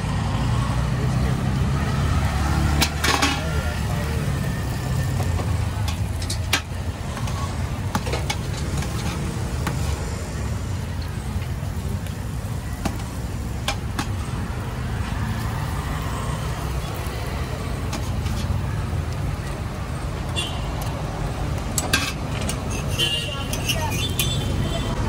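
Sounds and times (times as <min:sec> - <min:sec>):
metal spatula scraping griddle: 0:21.8 - 0:24.4.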